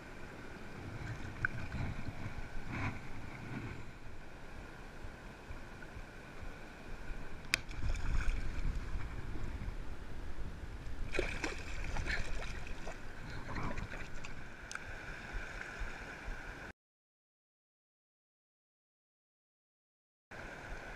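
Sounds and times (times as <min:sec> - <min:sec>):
wind rumble on microphone: 0:00.0 - 0:16.7
water splashing in shallows: 0:07.5 - 0:09.2, 0:11.1 - 0:16.1.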